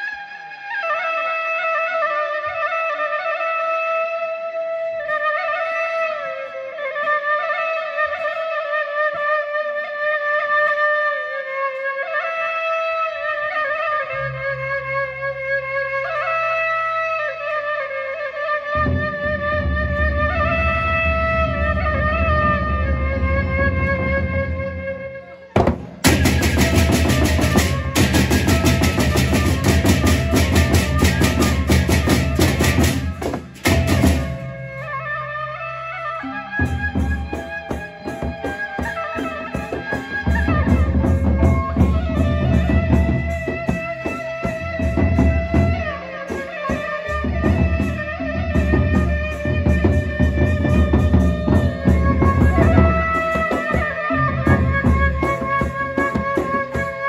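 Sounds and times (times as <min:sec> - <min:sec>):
wind pipe melody: 0:00.0 - 0:57.0
large barrel drums beaten: 0:25.6 - 0:34.9, 0:36.6 - 0:45.9, 0:46.7 - 0:57.0.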